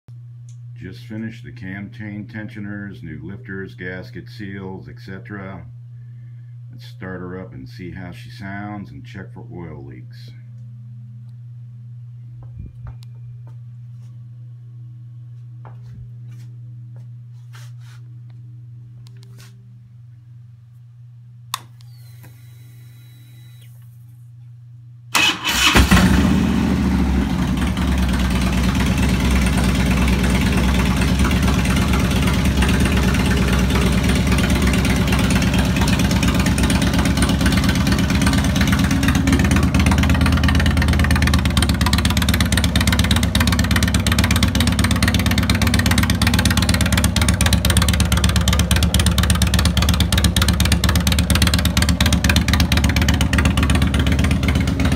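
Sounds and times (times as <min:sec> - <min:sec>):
starter motor cranking: 0:25.2 - 0:26.4
motorcycle engine idling: 0:25.2 - 0:54.9.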